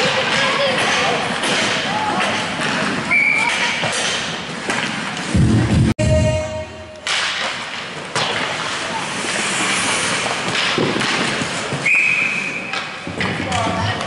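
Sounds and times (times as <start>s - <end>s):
skates and sticks on ice: 0.0s - 5.4s, 7.0s - 14.0s
referee's whistle: 11.8s - 12.7s.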